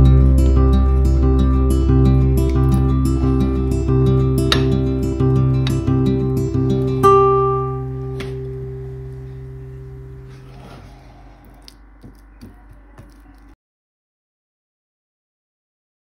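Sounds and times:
plucked guitar note ringing: 0.0s - 10.3s.

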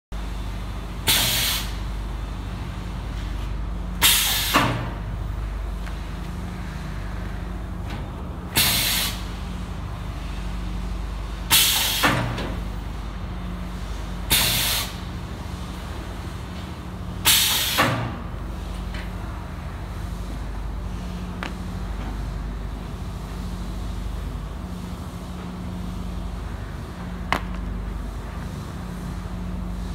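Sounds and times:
low machine hum: 0.2s - 29.9s
air hiss of machine stroke: 1.0s - 1.8s, 4.0s - 4.9s, 8.6s - 9.4s, 11.5s - 12.4s, 13.8s - 15.1s, 17.2s - 18.1s.

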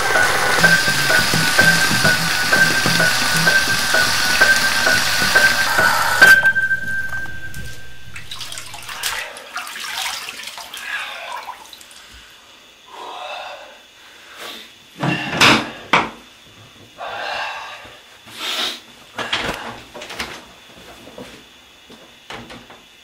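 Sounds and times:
water splashing in a sink: 0.0s - 12.1s.

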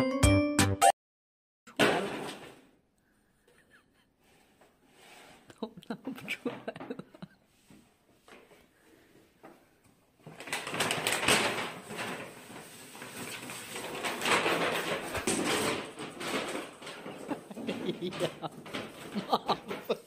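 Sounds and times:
paper bag rustling and scraping: 10.2s - 20.0s.

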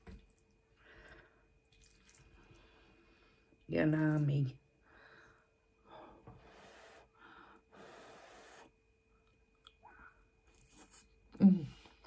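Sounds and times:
soft breathing: 4.8s - 8.7s.

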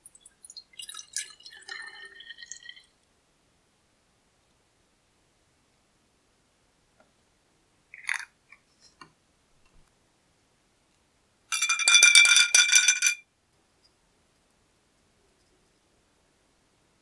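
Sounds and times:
glass bottle rattling when shaken: 8.0s - 8.3s, 11.5s - 13.2s.

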